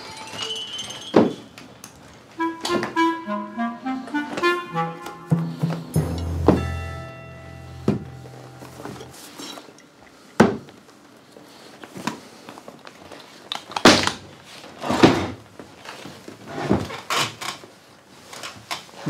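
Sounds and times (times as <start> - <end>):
background music: 2.4 - 9.2.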